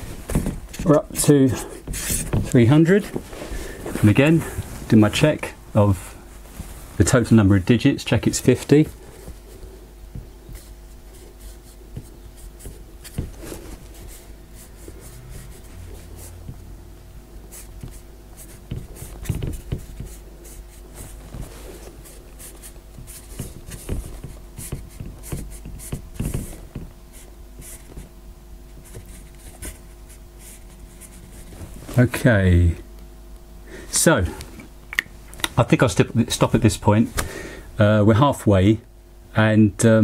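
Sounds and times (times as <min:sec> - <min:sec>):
faint steady hum: 0:00.0 - 0:40.0
marker writing on board: 0:10.4 - 0:13.4, 0:17.5 - 0:20.8, 0:22.4 - 0:28.1.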